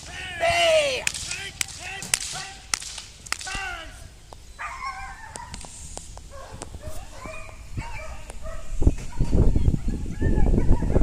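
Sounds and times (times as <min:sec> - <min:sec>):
whip cracking: 0:00.8 - 0:03.8.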